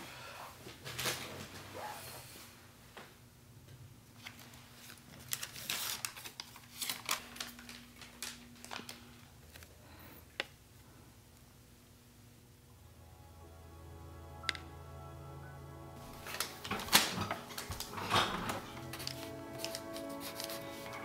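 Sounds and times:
paper rustling and crinkling: 0:04.2 - 0:09.7, 0:16.1 - 0:21.0.

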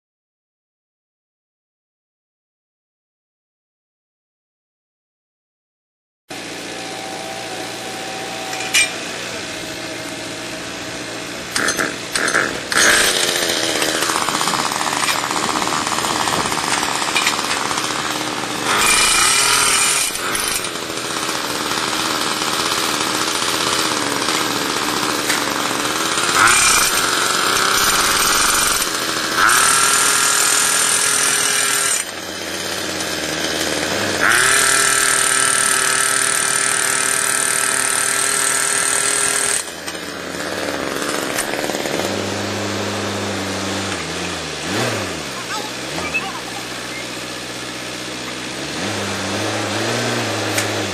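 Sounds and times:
tractor engine drone: 0:06.3 - 0:50.9
jackhammer driving post into ground: 0:11.5 - 0:50.9.

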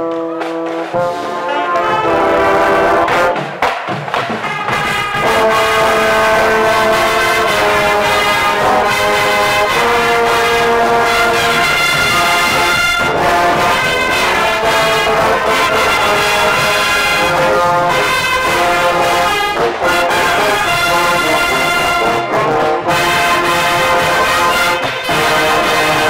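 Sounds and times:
marching band brass playing: 0:00.0 - 0:26.0.

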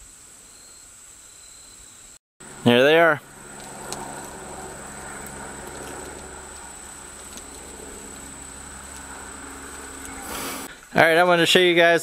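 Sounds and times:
high-pitched whine: 0:00.4 - 0:10.7
steady low hum: 0:02.4 - 0:10.9.

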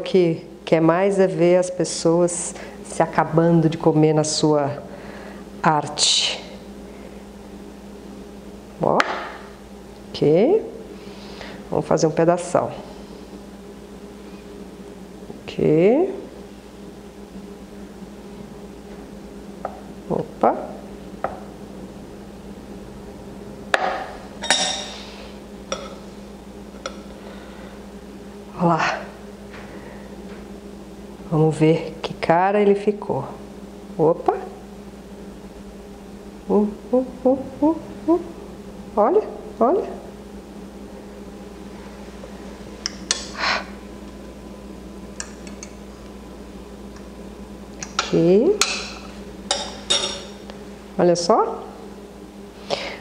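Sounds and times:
metal utensils clinking on dishware: 0:24.4 - 0:25.0, 0:48.0 - 0:50.3.

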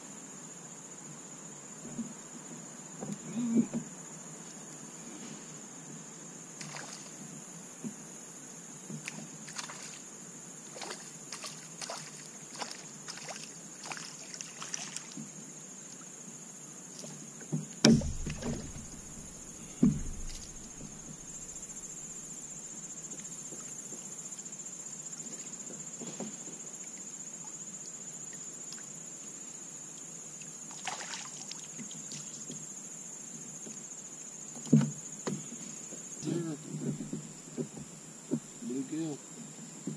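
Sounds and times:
insects droning: 0:00.0 - 0:39.9
hollow knocks on plastic hull: 0:17.5 - 0:21.9, 0:34.7 - 0:35.5.

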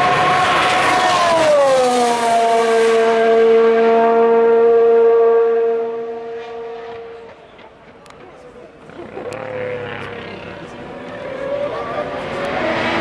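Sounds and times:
racing car engine high note: 0:00.0 - 0:07.4.

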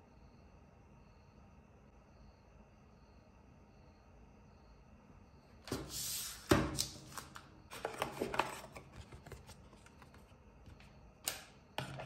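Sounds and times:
cardboard box rustling: 0:07.7 - 0:10.3.

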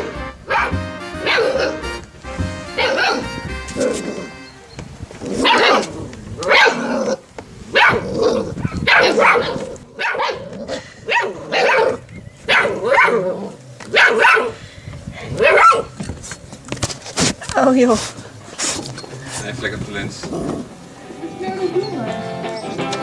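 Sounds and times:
puppy barking: 0:00.0 - 0:02.0, 0:02.7 - 0:04.4, 0:05.3 - 0:10.5, 0:11.1 - 0:14.6, 0:15.4 - 0:16.0.

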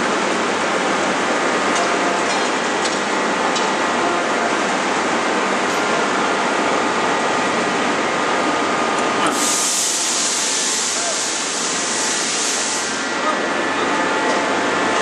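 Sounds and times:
loud machinery noise: 0:00.0 - 0:15.0
loud high hiss: 0:09.2 - 0:13.3.

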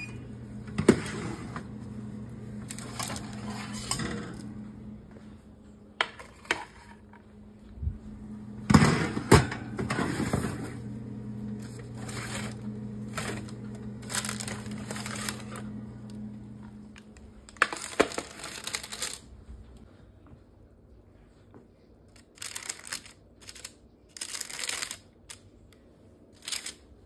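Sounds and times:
steady low hum: 0:00.0 - 0:17.7
metal baking trays clanking: 0:02.8 - 0:04.5, 0:08.7 - 0:10.8.

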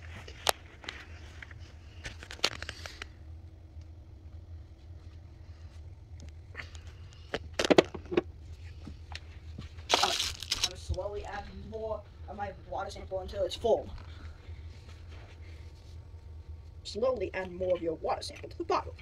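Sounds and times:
steady low hum: 0:00.0 - 0:19.0
clicks and knocks handling objects: 0:09.9 - 0:11.0.

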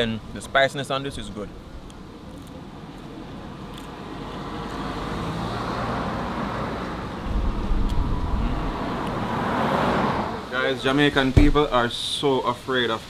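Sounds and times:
minivan driving closer: 0:04.0 - 0:11.8.

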